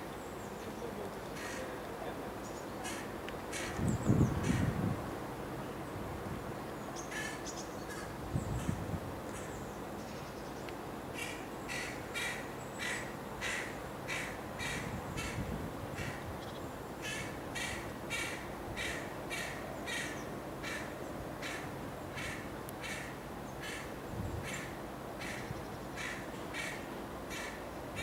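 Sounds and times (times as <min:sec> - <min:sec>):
young crow begging calls: 0:01.4 - 0:01.8, 0:02.8 - 0:04.8, 0:07.0 - 0:09.6, 0:11.2 - 0:28.0.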